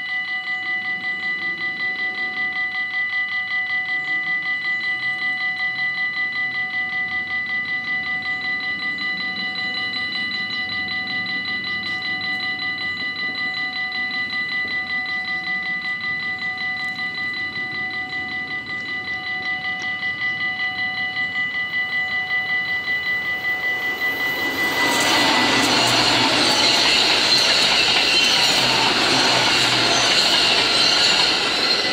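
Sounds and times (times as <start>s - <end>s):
level crossing bells ringing: 0.0s - 31.9s
approaching train rushing: 21.8s - 31.9s.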